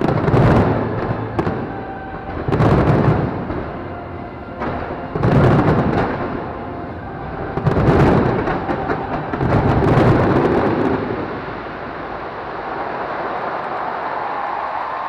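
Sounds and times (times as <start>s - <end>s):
fireworks bursting and crackling: 0.0s - 15.0s.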